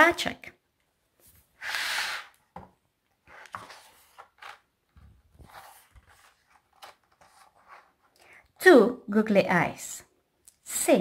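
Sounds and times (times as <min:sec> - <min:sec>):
book pages rustling: 0:03.2 - 0:08.2.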